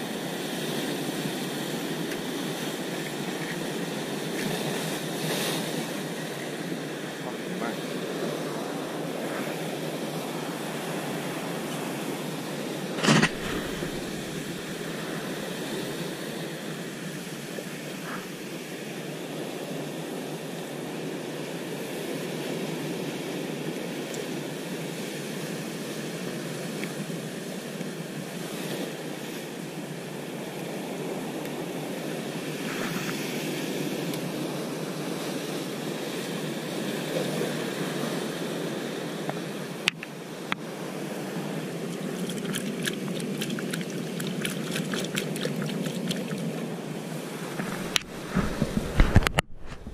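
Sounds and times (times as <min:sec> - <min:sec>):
surf breaking over rocks: 0:00.3 - 0:17.9, 0:37.0 - 0:49.9.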